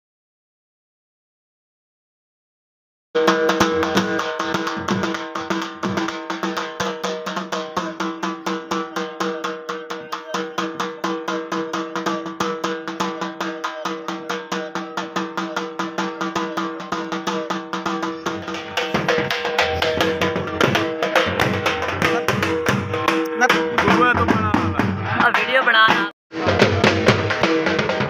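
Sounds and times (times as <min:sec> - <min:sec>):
steady held notes: 0:03.2 - 0:24.4
fast drum beat: 0:03.2 - 0:28.0.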